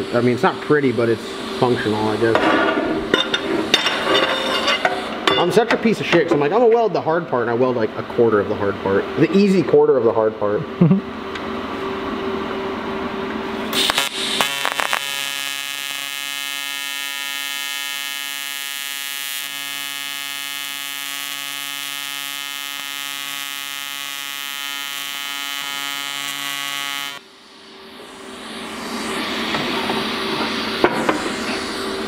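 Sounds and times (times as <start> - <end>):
welding arc electric buzz: 13.6 - 32.0
welding arc crackle: 13.7 - 27.3.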